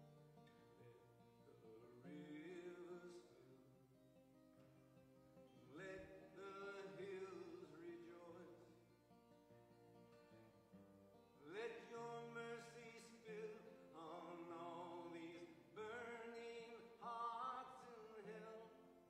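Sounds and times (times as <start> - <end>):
acoustic guitar: 0.0 - 19.0
man singing: 1.6 - 3.6, 5.7 - 8.8, 11.4 - 19.0.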